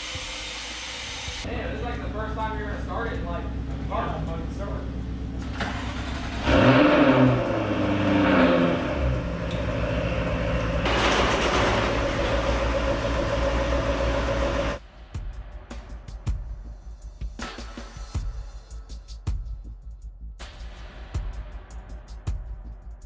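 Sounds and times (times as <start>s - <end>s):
car engine revving: 0.3s - 14.8s.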